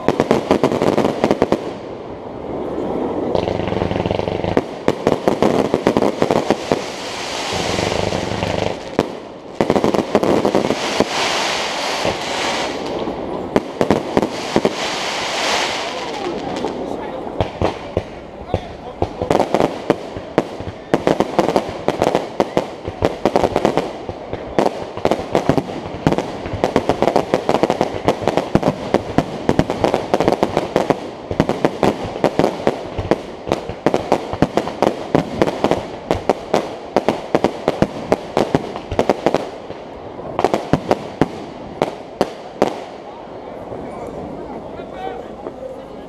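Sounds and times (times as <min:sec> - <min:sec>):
crackling firework stars: 0:00.0 - 0:46.0
firework shells bursting: 0:03.3 - 0:16.8.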